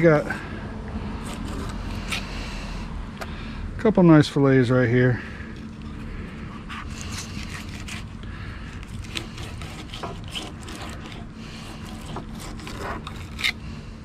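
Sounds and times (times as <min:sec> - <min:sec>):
knife scraping on cutting board: 0:01.2 - 0:02.3, 0:05.7 - 0:08.2, 0:08.8 - 0:13.6.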